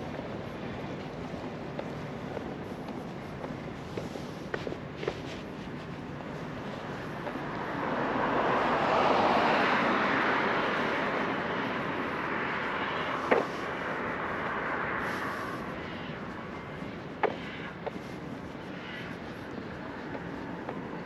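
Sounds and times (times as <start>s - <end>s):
vehicle passing by: 7.2s - 16.8s.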